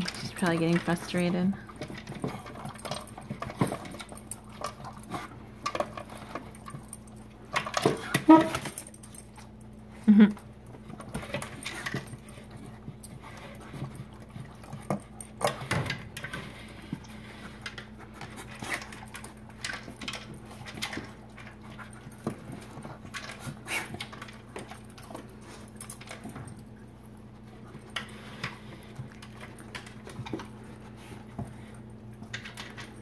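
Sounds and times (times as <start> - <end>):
dogs eating from plastic bowls: 0.0 - 33.0.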